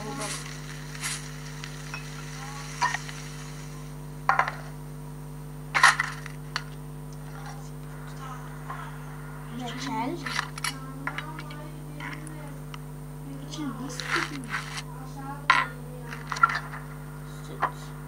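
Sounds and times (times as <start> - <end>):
frying sizzle: 0.0 - 5.1
electrical hum: 0.0 - 18.0.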